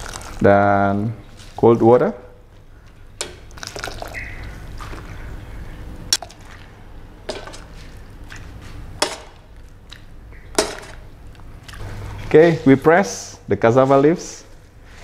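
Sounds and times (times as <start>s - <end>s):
water sloshing: 3.2s - 11.8s.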